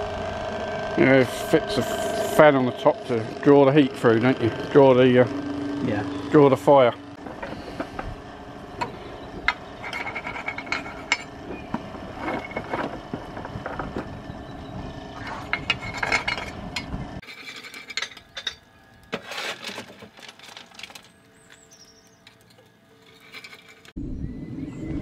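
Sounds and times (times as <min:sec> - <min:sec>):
electric draught fan humming: 0:00.0 - 0:24.0.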